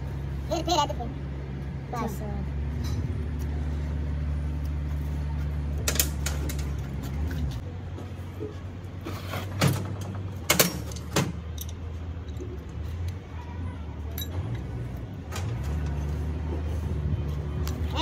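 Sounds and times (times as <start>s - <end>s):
low engine hum: 0.0s - 18.0s
wrench clinking on metal: 10.6s - 12.5s, 14.1s - 14.7s.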